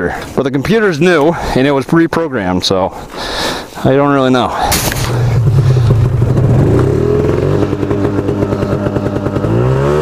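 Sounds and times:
snowmobile engine revving: 0:04.6 - 0:10.0.

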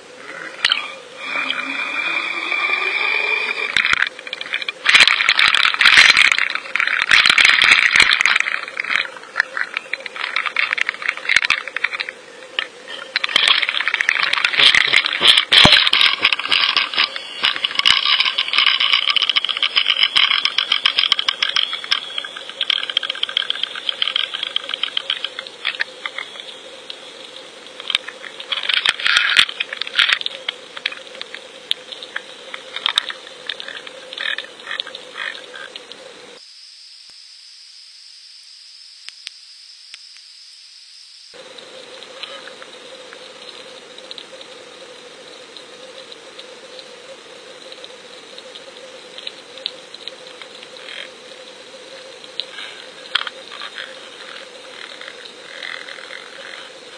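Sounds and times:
steady hum: 0:00.0 - 0:56.9
rattling clicks underwater: 0:03.7 - 0:26.3, 0:27.8 - 0:36.0
high hiss: 0:36.0 - 0:56.9.

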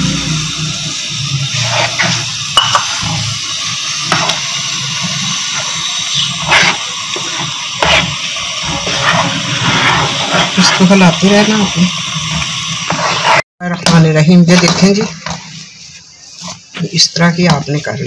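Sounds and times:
water boiling in a pan: 0:00.0 - 0:13.5
wooden spoon scraping a pan: 0:01.5 - 0:03.3, 0:04.1 - 0:04.4, 0:05.0 - 0:18.0.

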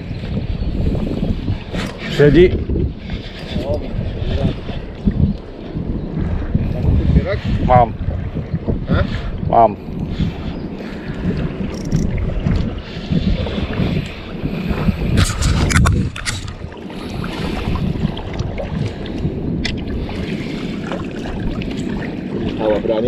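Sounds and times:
wind buffeting microphone: 0:00.0 - 0:23.0
fishing reel winding: 0:11.7 - 0:12.1.

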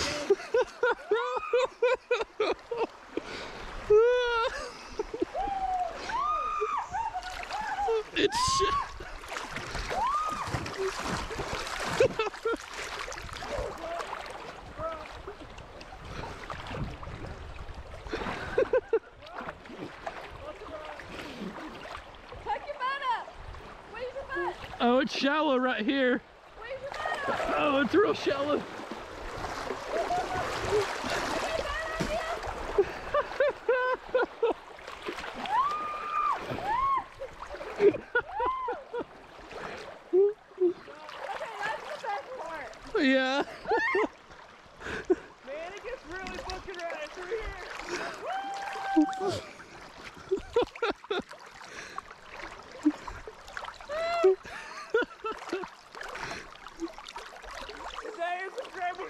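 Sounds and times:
person laughing: 0:00.0 - 0:02.9, 0:03.9 - 0:05.4, 0:06.6 - 0:08.9, 0:11.8 - 0:12.6, 0:18.2 - 0:19.1, 0:32.7 - 0:34.6, 0:37.8 - 0:39.1, 0:40.1 - 0:40.9, 0:43.4 - 0:44.1, 0:50.2 - 0:51.3, 0:53.9 - 0:55.7
river water splashing and gurgling: 0:00.0 - 0:59.0
person squealing: 0:06.1 - 0:09.0.

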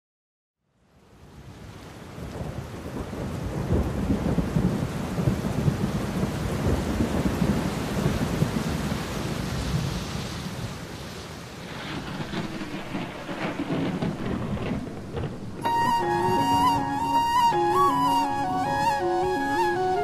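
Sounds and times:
rain: 0:00.6 - 0:20.0
rumble of thunder: 0:02.3 - 0:09.0, 0:11.6 - 0:20.0.

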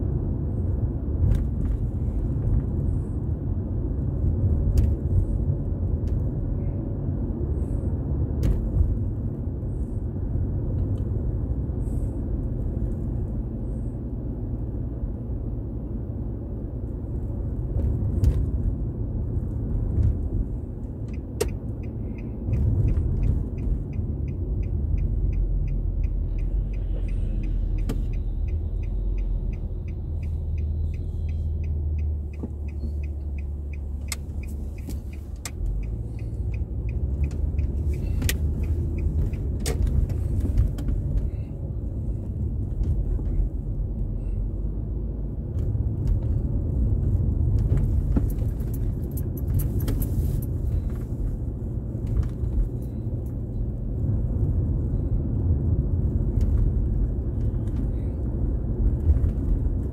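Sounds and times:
car road and engine rumble: 0:00.0 - 0:59.9
turn signal ticking: 0:16.9 - 0:59.9.

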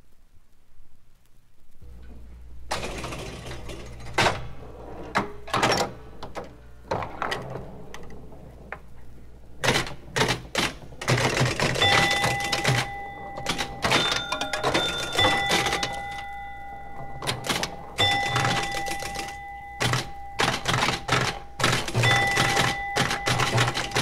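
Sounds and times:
pinball clicks and knocks: 0:02.7 - 0:08.8, 0:09.6 - 0:24.0
bell-like scoring tones: 0:11.6 - 0:24.0.

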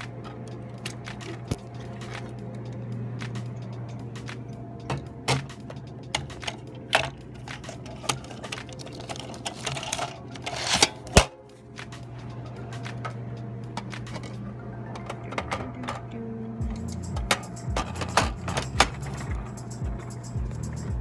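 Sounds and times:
steady low hum: 0:00.0 - 0:21.0
plastic clicks and clacks: 0:04.2 - 0:12.1.

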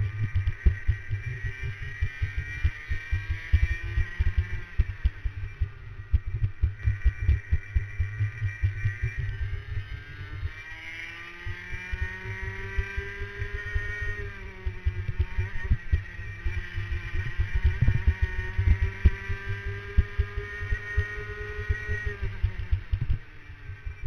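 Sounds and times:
low rumbling thumps: 0:00.0 - 0:09.3
racing kart engine: 0:00.0 - 0:24.0.

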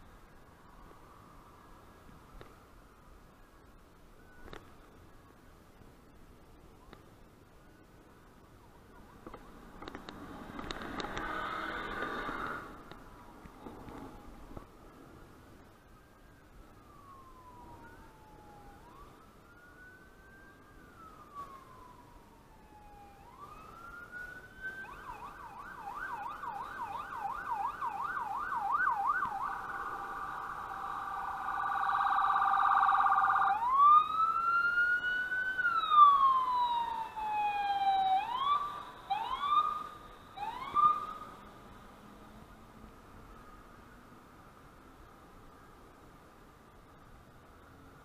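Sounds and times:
emergency vehicle siren: 0:15.8 - 0:44.3.

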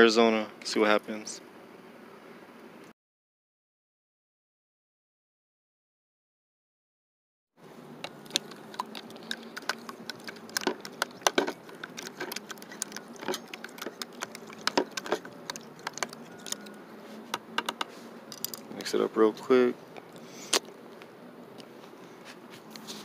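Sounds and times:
fork whisking eggs in plastic container: 0:08.0 - 0:16.8.

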